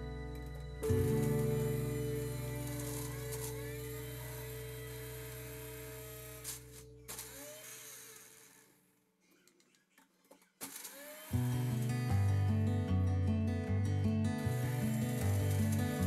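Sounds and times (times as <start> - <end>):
held many-toned music chord: 0.0 - 7.1.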